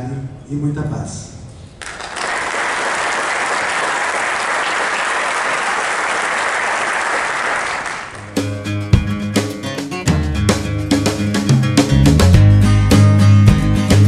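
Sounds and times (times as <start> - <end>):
audience applauding: 1.8 - 8.3
music: 8.2 - 14.0.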